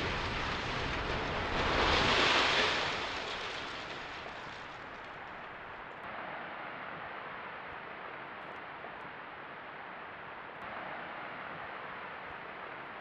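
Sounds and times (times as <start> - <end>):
demolition rumbling roar: 0.0 - 5.8.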